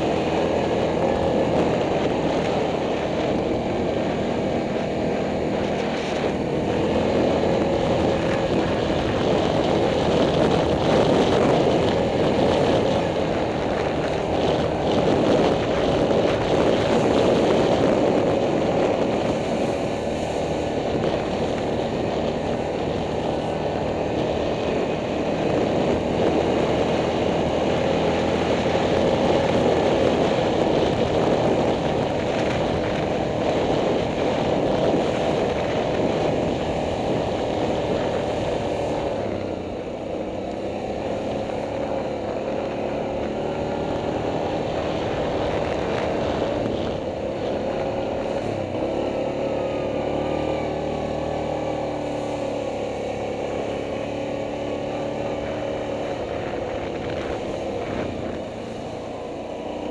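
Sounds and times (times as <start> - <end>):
atv engine running: 0.0 - 59.9.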